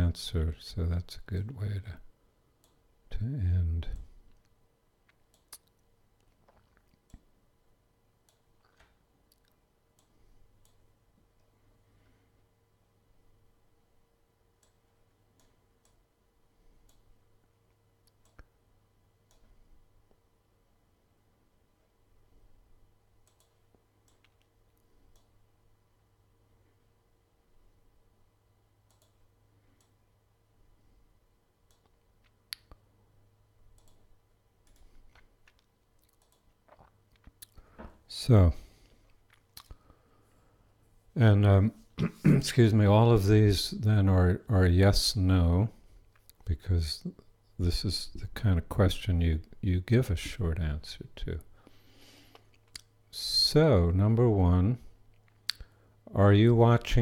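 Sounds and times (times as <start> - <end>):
faint steady hum: 0.0 - 57.0
faint clicks: 23.2 - 25.4, 28.8 - 29.2, 33.7 - 34.0.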